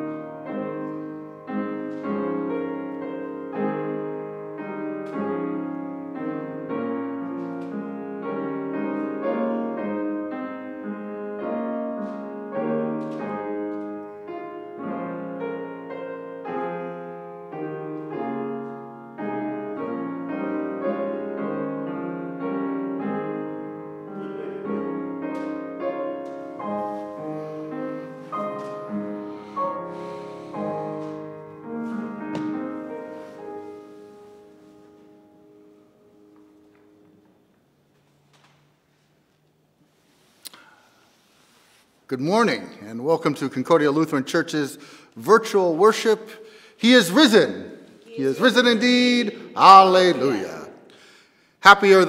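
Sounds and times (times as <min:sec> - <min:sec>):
slow quiet solo piano: 0:00.0 - 0:38.4.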